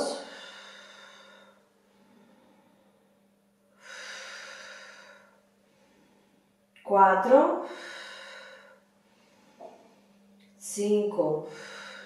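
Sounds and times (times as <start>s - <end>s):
woman breathy exhale: 0.0s - 3.0s, 3.8s - 6.4s, 7.6s - 9.8s, 11.5s - 12.0s
faint steady hum: 0.0s - 12.0s.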